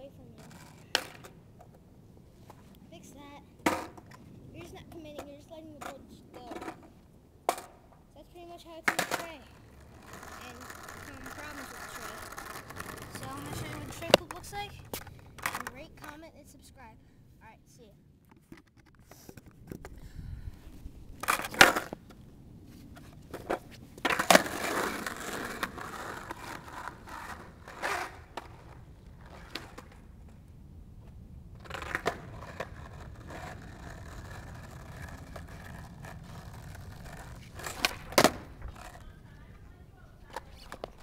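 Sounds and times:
skateboard wheels rumbling: 0.0s - 16.8s, 20.7s - 41.0s
skateboard scrape: 0.3s - 1.4s, 3.6s - 7.8s, 8.5s - 16.3s, 20.6s - 30.5s, 31.5s - 39.2s
skateboard knocks: 3.6s - 6.9s, 8.8s - 9.3s, 10.1s - 16.2s, 36.5s - 39.0s.

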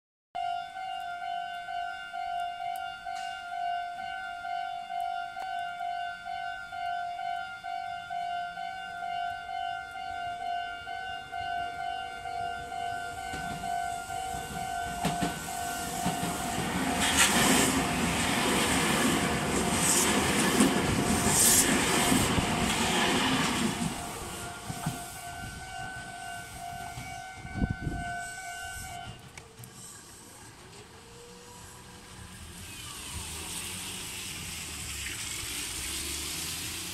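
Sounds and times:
train wheels clattering on rails: 13.3s - 27.8s.

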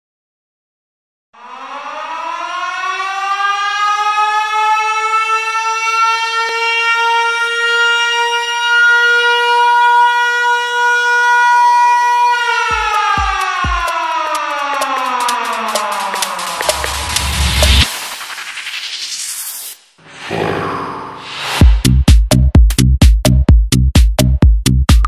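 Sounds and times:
air-raid siren wailing: 1.4s - 17.9s
kick drum: 12.6s - 14.0s, 21.6s - 25.0s.

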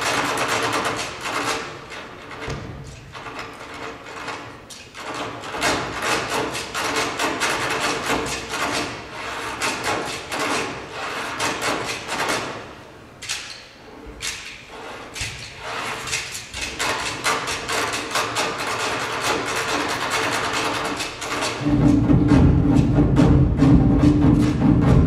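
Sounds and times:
rattling wooden clacking percussion: 0.0s - 25.0s.

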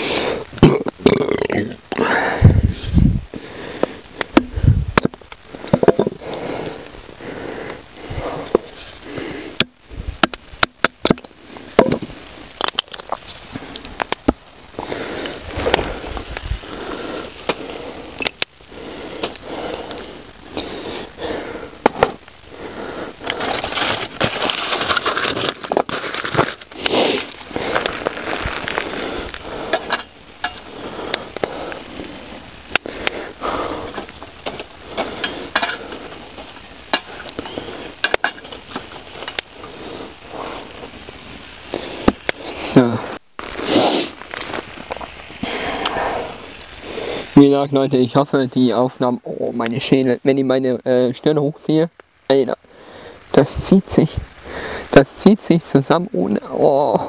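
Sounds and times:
dry sticks snapping: 12.6s - 18.6s, 23.2s - 33.2s, 33.8s - 39.8s.

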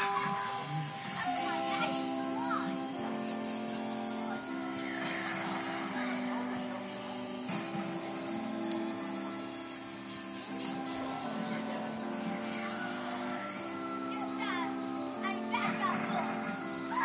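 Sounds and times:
crickets chirping: 0.0s - 17.0s.

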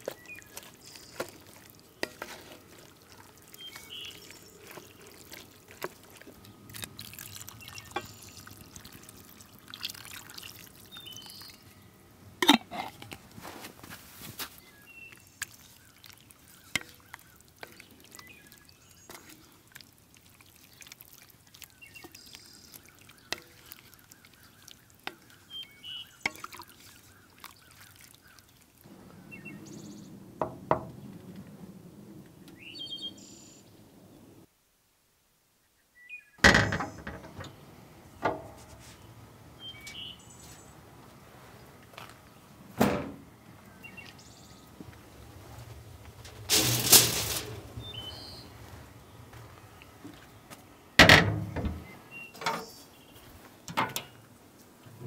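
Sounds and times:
bird chirps: 3.5s - 5.1s, 10.8s - 11.9s, 21.6s - 30.2s, 32.4s - 33.8s, 38.8s - 40.8s, 43.5s - 44.7s, 47.8s - 49.3s
light clicks and knocks: 36.4s - 37.6s, 38.2s - 39.0s
loud clatter: 46.5s - 47.6s.

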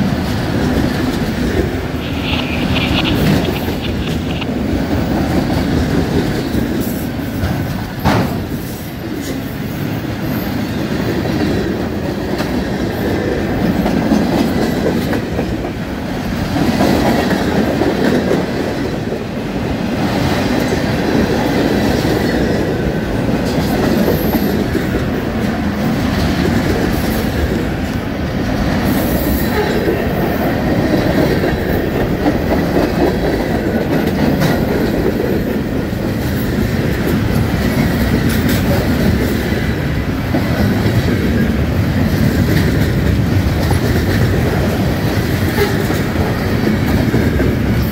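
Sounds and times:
train wheels rumbling on rail: 0.0s - 47.9s.

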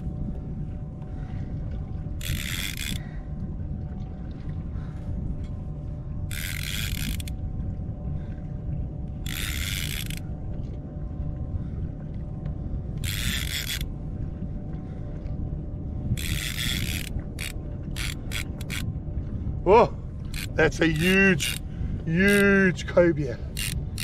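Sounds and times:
low rumble: 0.0s - 24.0s
fishing reel drag buzzing: 2.2s - 3.2s, 6.3s - 7.4s, 9.2s - 10.3s, 13.0s - 13.9s, 16.1s - 18.9s, 20.2s - 22.6s, 23.5s - 24.0s.

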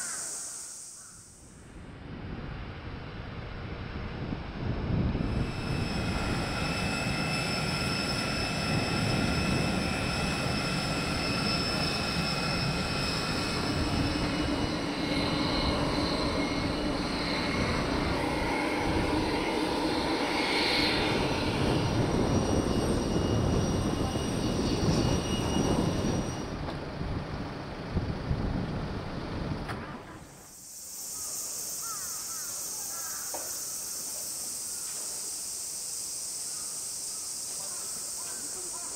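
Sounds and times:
aircraft and machinery engine noise: 0.0s - 38.9s
high whine: 0.0s - 38.9s.

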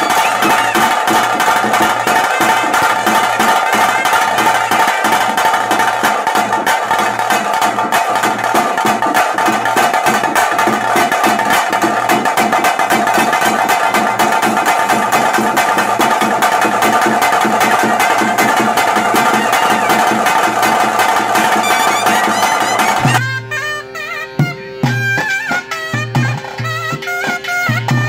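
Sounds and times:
fast loud drumming: 0.0s - 23.2s
reed pipe melody: 0.0s - 28.0s.

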